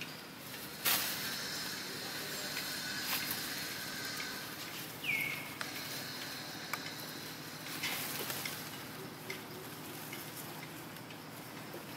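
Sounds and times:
steady high hiss: 0:00.0 - 0:11.9
high animal call: 0:00.7 - 0:08.2
faint clicks: 0:05.5 - 0:11.9.

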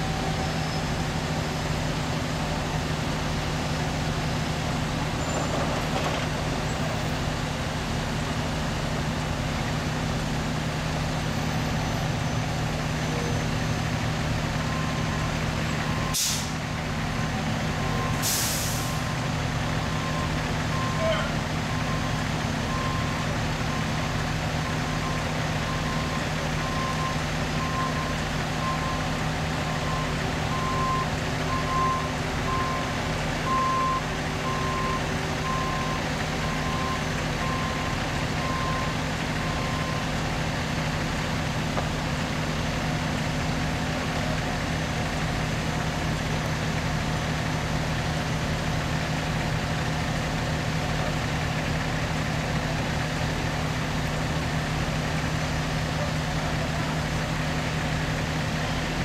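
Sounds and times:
heavy machinery engines running: 0:00.0 - 0:59.0
reversing alarm beeping: 0:14.6 - 0:16.4, 0:17.7 - 0:29.1, 0:29.7 - 0:40.2.

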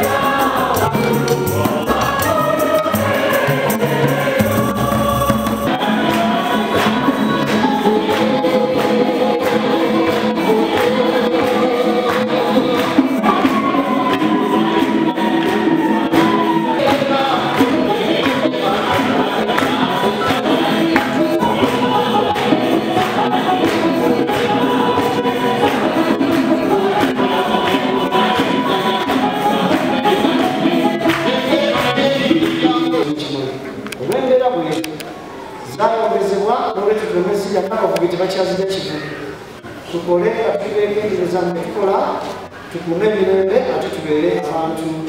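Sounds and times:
steady percussive beat: 0:00.0 - 0:33.5
choir singing gospel song: 0:00.0 - 0:45.0.

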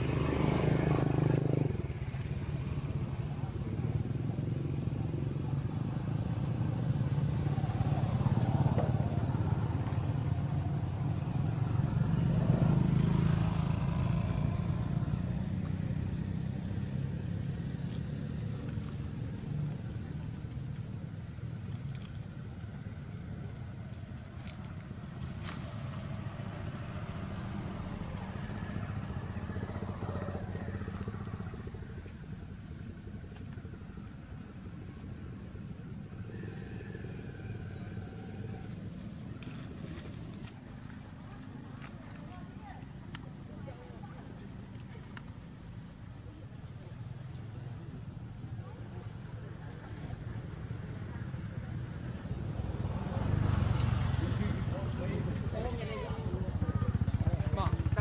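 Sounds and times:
vehicle engine rumbling: 0:00.0 - 0:58.0.

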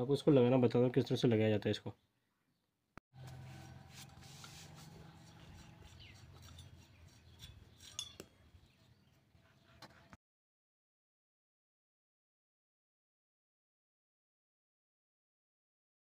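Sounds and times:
metal parts clinking and rubbing: 0:06.3 - 0:08.2.

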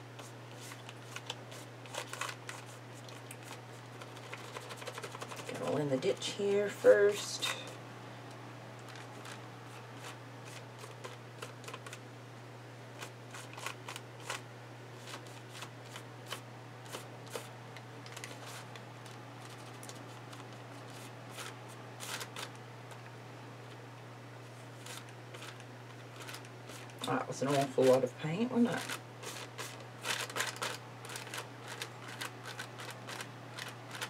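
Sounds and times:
fingers rubbing paint on paper: 0:03.4 - 0:05.6.

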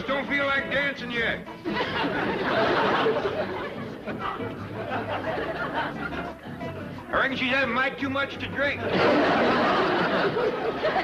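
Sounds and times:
audience laughing: 0:01.5 - 0:07.0, 0:08.8 - 0:11.0.

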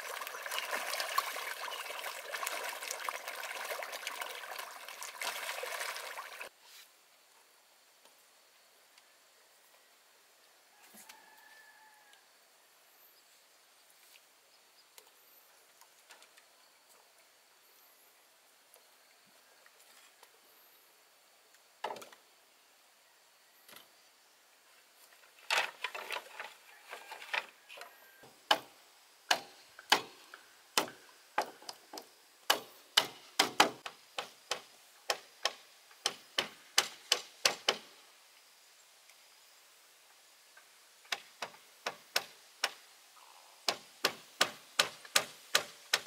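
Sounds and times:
tool striking bamboo: 0:28.5 - 0:30.2, 0:32.5 - 0:37.9, 0:41.1 - 0:42.8, 0:43.7 - 0:46.0.

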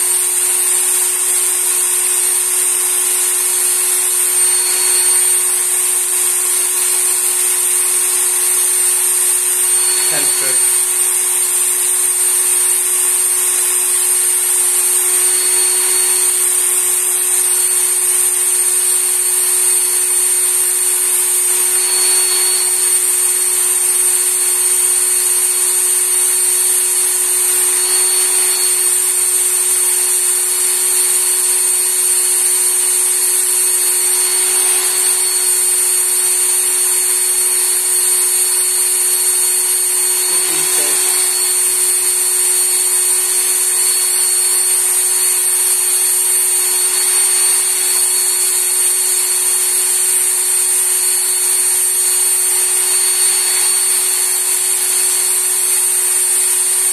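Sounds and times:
sharpener belt motor whine: 0:00.0 - 0:56.9.

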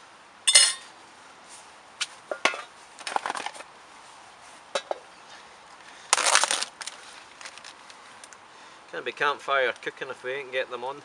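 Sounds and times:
plastic film ripping: 0:06.1 - 0:08.0
plastic film crinkling: 0:06.1 - 0:08.4.

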